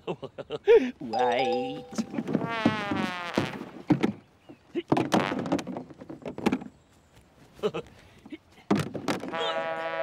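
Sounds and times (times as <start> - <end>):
boat and oars knocking: 2.0 - 6.7.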